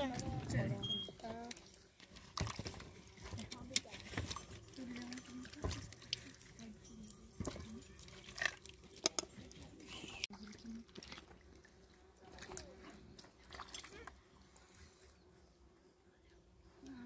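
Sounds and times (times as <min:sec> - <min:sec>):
wet squishing of filling: 0:00.9 - 0:14.2.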